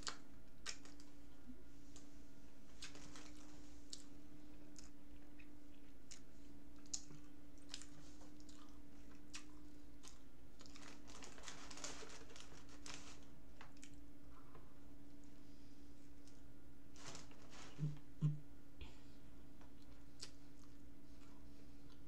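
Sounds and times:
steady low hum: 0:00.0 - 0:22.0
rustling: 0:10.6 - 0:13.8, 0:16.9 - 0:18.2.

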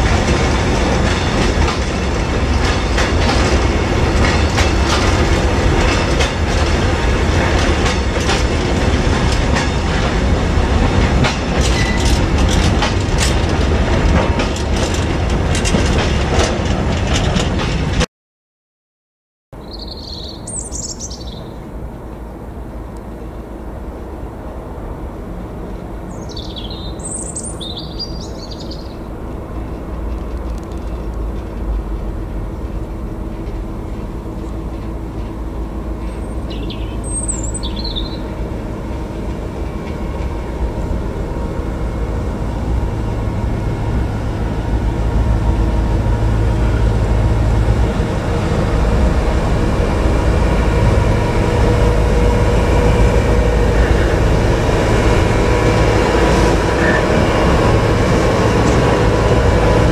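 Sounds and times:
small bird chirping: 0:19.6 - 0:21.6, 0:26.1 - 0:29.0, 0:36.5 - 0:38.2
diesel engine hum of track machine: 0:28.9 - 0:59.9.

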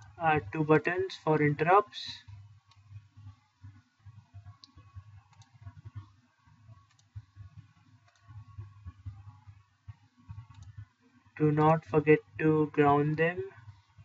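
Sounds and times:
computer mouse clicks: 0:04.4 - 0:09.3, 0:10.3 - 0:10.9.

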